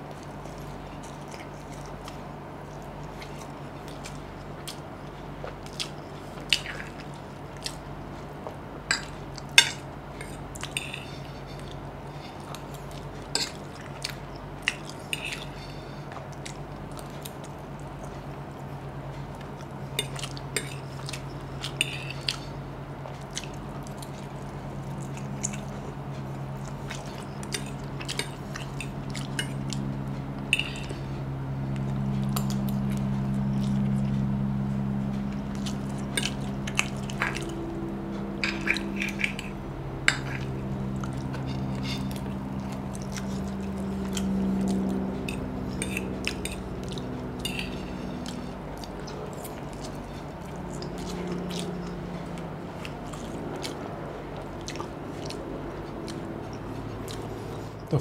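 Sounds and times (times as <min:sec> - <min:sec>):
slurping and chewing noodles: 0:00.0 - 0:18.6, 0:35.1 - 0:58.0
steady low hum: 0:00.0 - 0:58.0.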